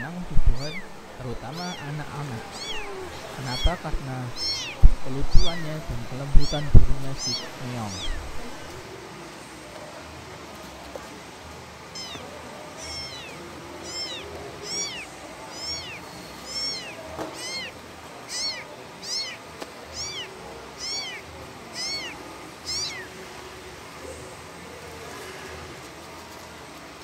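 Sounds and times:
kitten meowing: 0:00.0 - 0:08.8, 0:12.0 - 0:23.1.

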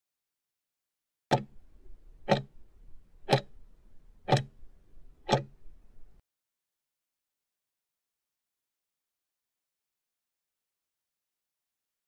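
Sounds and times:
countdown clock ticks: 0:01.3 - 0:01.6, 0:02.2 - 0:02.6, 0:03.3 - 0:03.6, 0:04.3 - 0:04.6, 0:05.3 - 0:05.6.

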